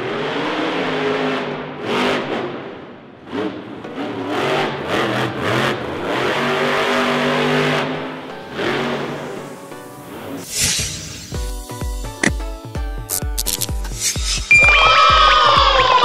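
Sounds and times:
monster truck engine revving: 0.0s - 9.6s.

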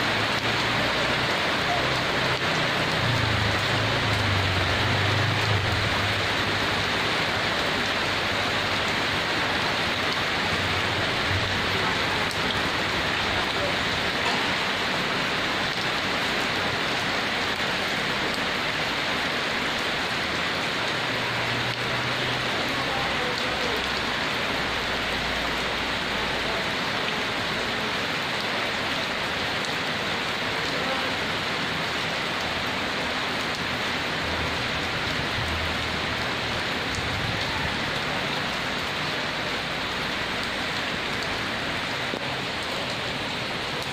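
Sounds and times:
heavy rain falling: 0.0s - 43.9s.

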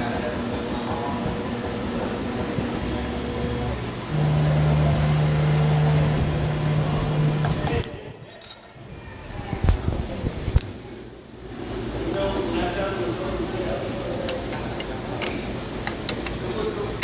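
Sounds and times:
engraving machine humming: 0.0s - 7.9s
motor drone: 2.3s - 7.8s.

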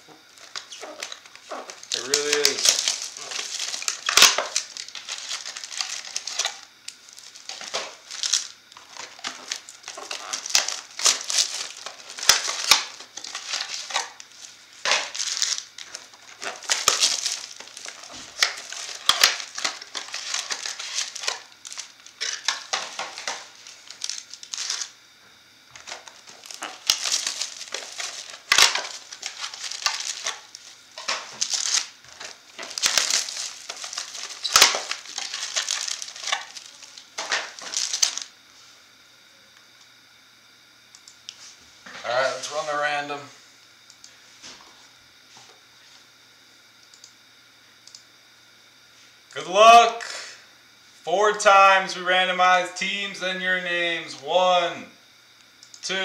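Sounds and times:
foil packs crinkling: 0.2s - 25.0s, 25.7s - 38.3s.

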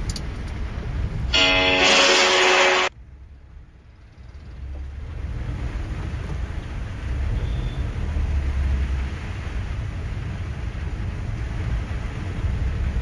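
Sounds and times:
low steady rumble: 0.0s - 13.0s
heavy rain on wet road: 4.6s - 13.0s.

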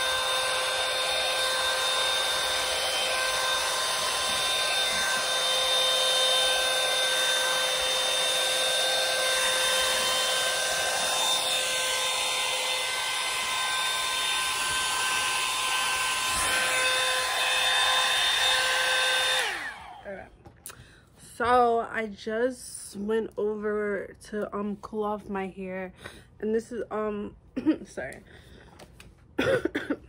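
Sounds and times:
hot air brush running: 0.0s - 20.2s.

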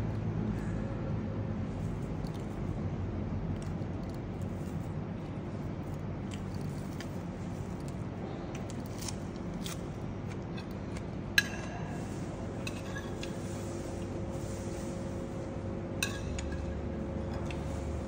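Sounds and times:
steady low hum: 0.0s - 18.0s
eating raw vegetables crunching: 1.9s - 2.8s, 3.4s - 11.0s
metal spoon clinking ceramic plate: 16.0s - 16.7s.

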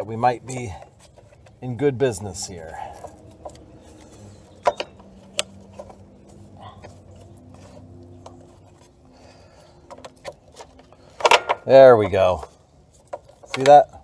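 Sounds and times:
small metal clicks and knocks: 2.9s - 8.6s, 9.8s - 14.0s.

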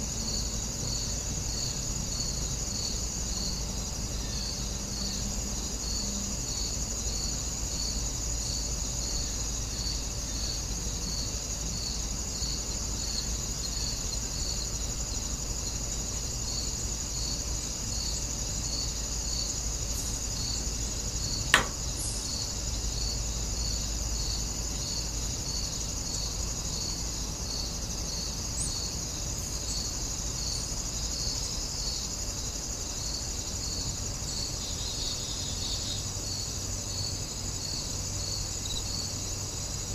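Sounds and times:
insects trilling: 0.0s - 39.9s
pulsing insect chirp: 0.0s - 39.9s
sharp click: 21.5s - 22.1s.

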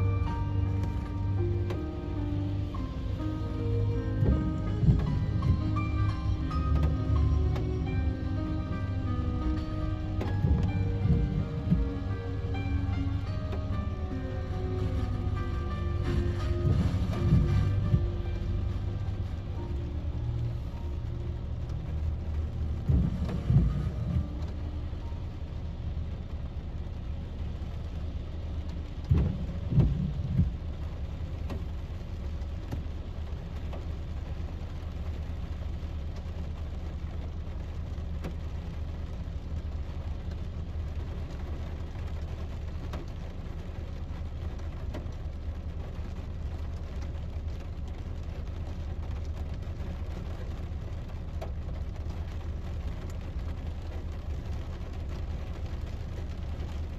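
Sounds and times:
car low hum: 0.0s - 56.9s
rain pattering on a car: 0.0s - 56.9s
low thumps: 0.2s - 20.6s, 21.9s - 24.9s, 29.1s - 30.8s.

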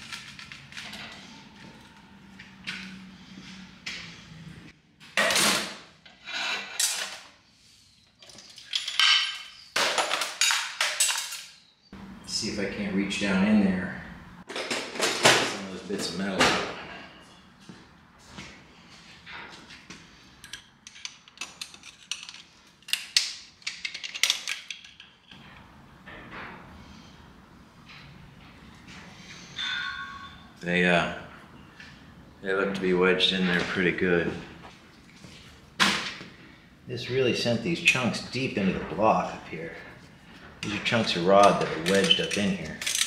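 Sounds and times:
metal parts scraping and rubbing: 20.4s - 25.4s, 40.6s - 43.0s
metal clicking and scraping: 41.4s - 43.0s.

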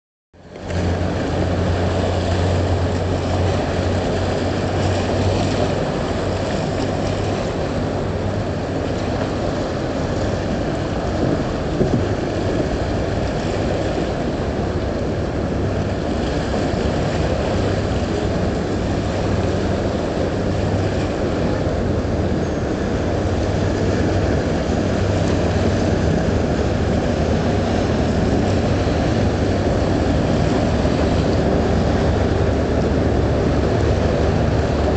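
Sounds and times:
boat engine humming: 0.4s - 34.9s
water rushing: 0.4s - 34.9s
wind buffeting microphone: 0.6s - 34.9s.

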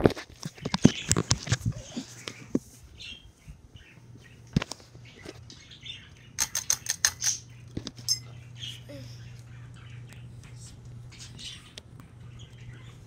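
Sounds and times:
ceiling fan humming: 0.0s - 13.0s.

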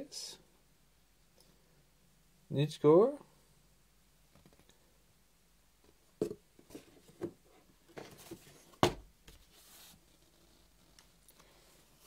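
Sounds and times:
cardboard sheets knocking and rustling: 6.2s - 9.5s.

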